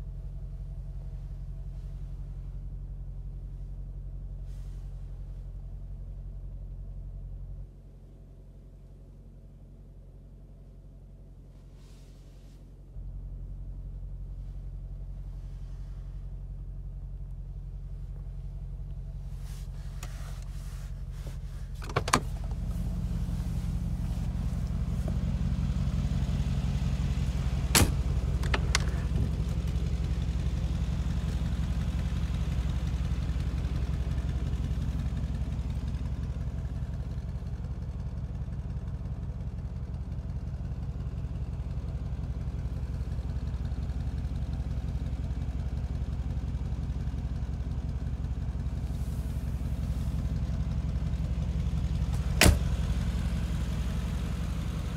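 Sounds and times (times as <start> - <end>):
car engine idling: 0.0 - 12.0, 12.8 - 54.9
door latch clicks: 27.8 - 29.1.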